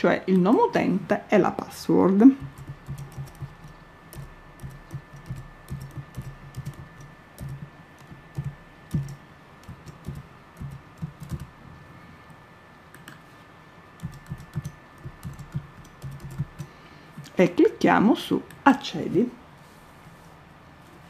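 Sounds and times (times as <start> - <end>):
keyboard keystroke clicks: 2.4 - 11.5.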